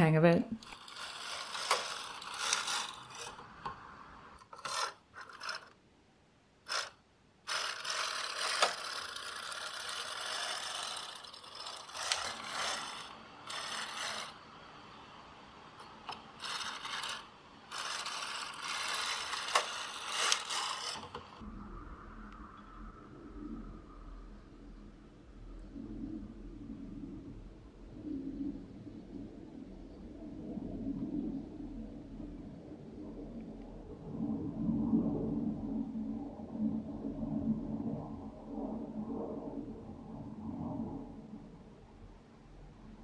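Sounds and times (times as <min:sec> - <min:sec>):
knitting machine carriage sliding: 0:00.6 - 0:03.8, 0:04.4 - 0:05.8, 0:06.7 - 0:14.4, 0:15.8 - 0:21.4
sharp clicks: 0:06.7 - 0:14.4.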